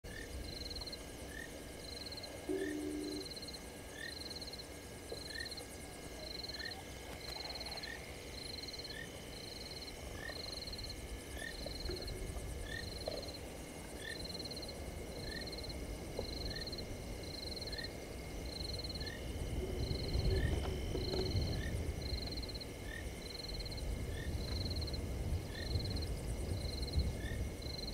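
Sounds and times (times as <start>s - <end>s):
lower frog chirp: 0.1s - 13.4s, 17.5s - 25.8s
steady high background: 1.9s - 5.6s
frog high call: 2.5s - 4.4s.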